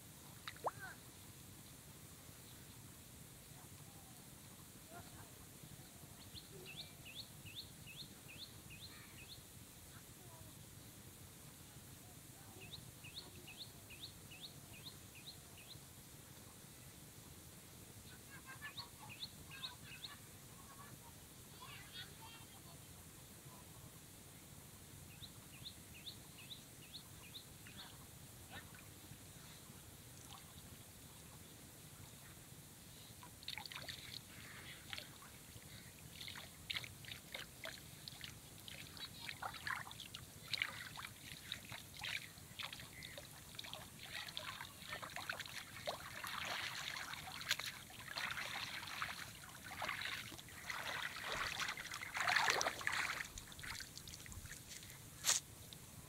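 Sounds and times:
water splashing and dripping: 0.4 - 0.8, 33.4 - 34.2, 36.1 - 54.7.

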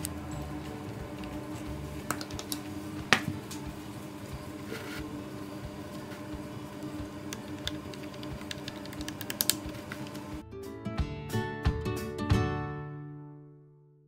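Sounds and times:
steady low hum: 0.0 - 10.4.

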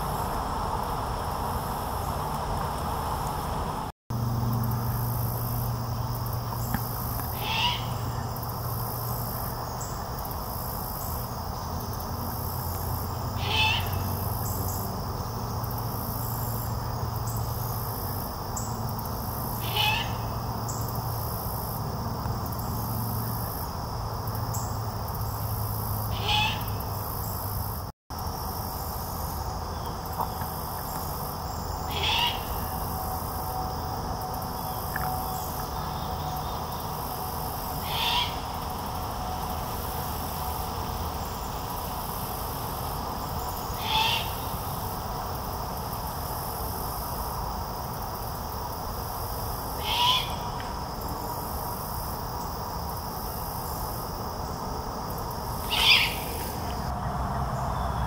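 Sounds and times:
owl raspy screech: 7.4 - 8.0, 13.4 - 14.0, 19.6 - 20.2, 26.1 - 26.7, 31.9 - 32.7, 37.8 - 38.4, 43.8 - 44.4, 49.8 - 50.4, 55.6 - 56.4.

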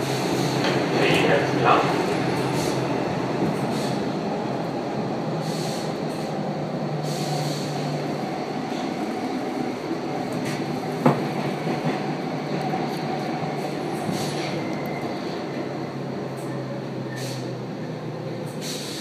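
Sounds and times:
wheels rumbling on rail: 0.0 - 19.0.

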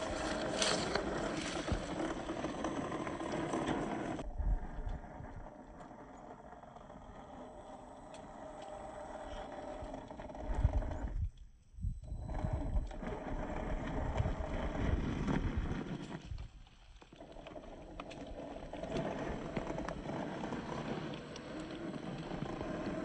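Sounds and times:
tyres thumping and scraping on ground: 0.0 - 4.2
electric motor and gearbox whining: 0.0 - 23.0.

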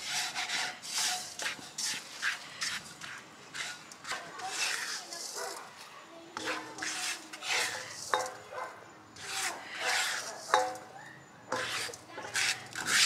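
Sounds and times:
plastic spatula scraping a wok: 0.0 - 8.5, 9.2 - 13.0.

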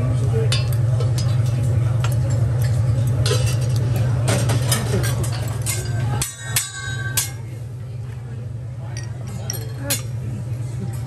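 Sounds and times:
steady low hum: 0.0 - 11.0
metal utensils clinking on griddle: 0.4 - 7.5.

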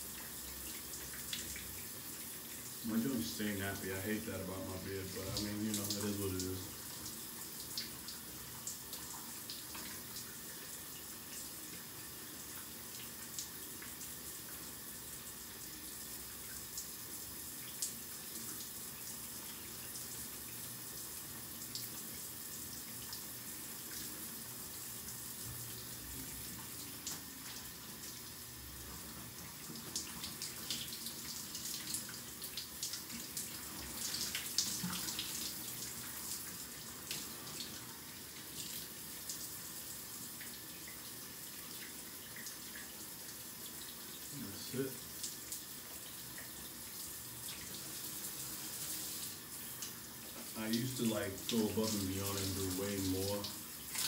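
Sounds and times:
shower water spray hissing: 1.3 - 8.0, 47.2 - 54.0.

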